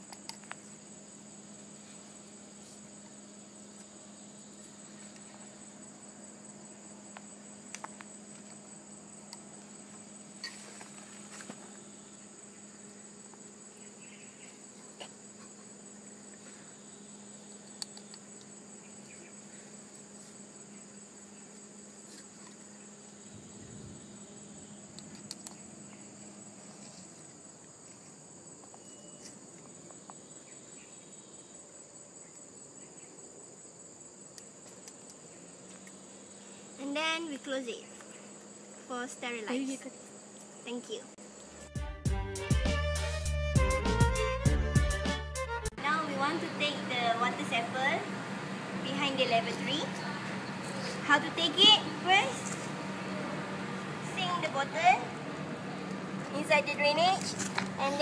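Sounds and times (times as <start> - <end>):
insects chirring: 0.0 - 41.7, 45.7 - 58.0
low steady hum: 45.7 - 58.0.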